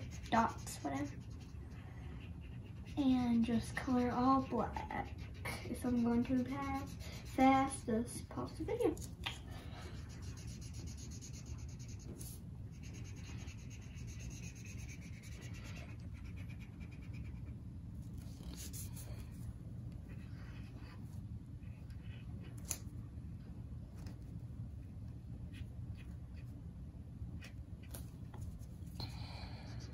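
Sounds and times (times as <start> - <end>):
marker scribbling on paper: 0.0 - 8.9, 10.0 - 17.6, 18.2 - 19.3
steady low hum: 0.0 - 29.9.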